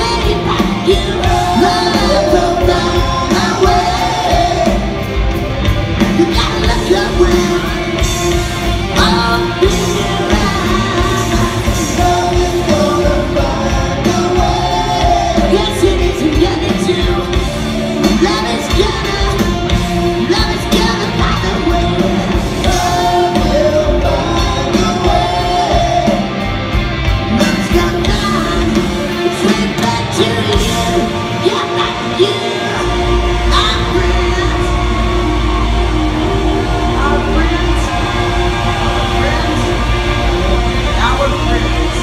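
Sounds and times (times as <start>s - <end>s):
man singing: 0.0s - 5.0s, 6.1s - 8.2s, 8.9s - 26.4s, 27.3s - 34.8s
live rock band playing ballad: 0.0s - 42.0s.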